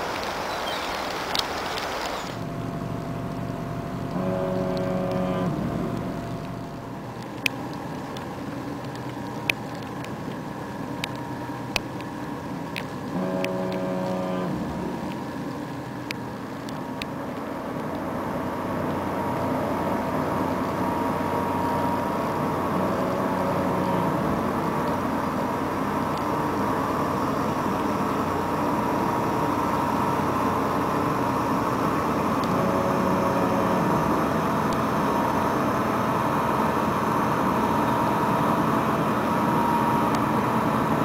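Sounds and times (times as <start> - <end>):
ship engine hum and rumble: 2.0 - 41.0
horn-like tone: 3.6 - 7.0, 13.1 - 15.0, 21.4 - 25.4, 32.4 - 35.4.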